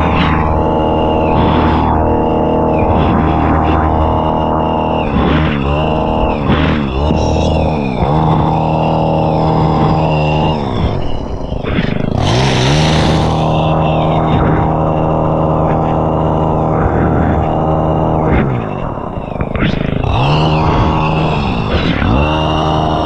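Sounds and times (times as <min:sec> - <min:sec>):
hedge trimmer engine revving: 0:00.0 - 0:23.0.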